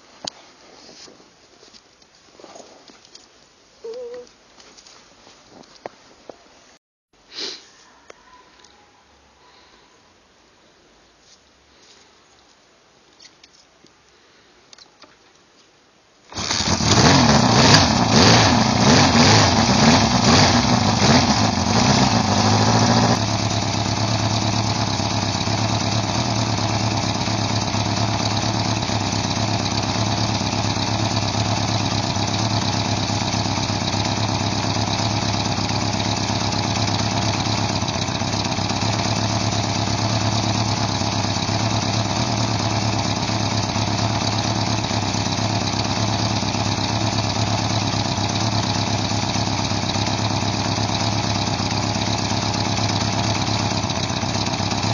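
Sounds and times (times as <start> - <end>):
motorcycle engine revving and idling: 16.3 - 54.9.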